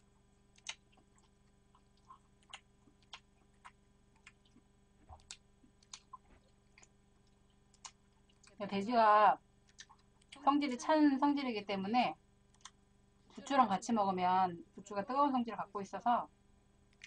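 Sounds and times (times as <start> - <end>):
steady electrical hum: 0.0 - 17.0
chewing with mouth clicks: 0.6 - 8.6, 9.6 - 10.4.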